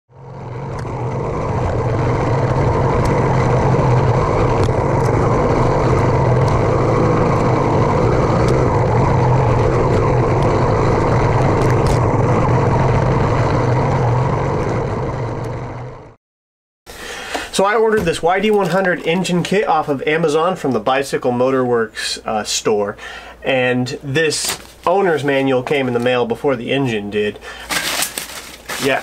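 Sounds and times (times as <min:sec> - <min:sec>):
two-stroke engine running: 0:00.1 - 0:16.2.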